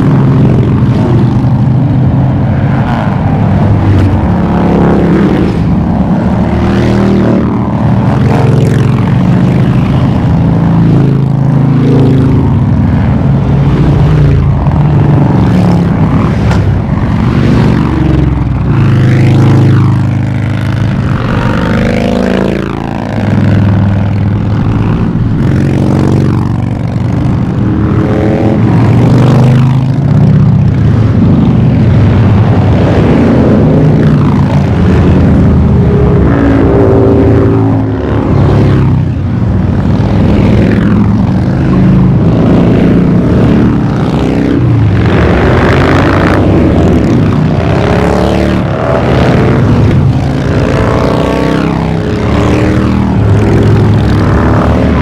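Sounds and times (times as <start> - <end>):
motorcycles riding past: 0.0 - 55.0.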